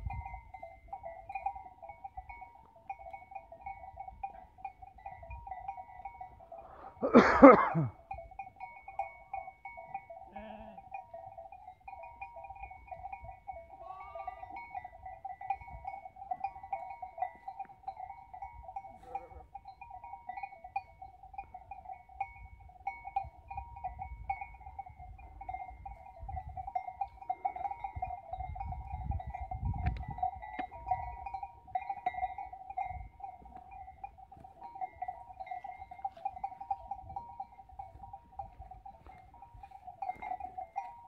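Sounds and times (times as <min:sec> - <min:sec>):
sheep bleating: 0:13.8 - 0:14.6.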